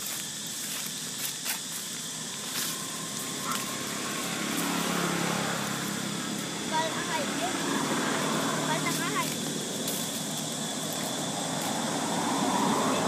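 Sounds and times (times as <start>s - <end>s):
low engine hum: 0.0s - 13.0s
outdoor background hiss: 0.0s - 13.0s.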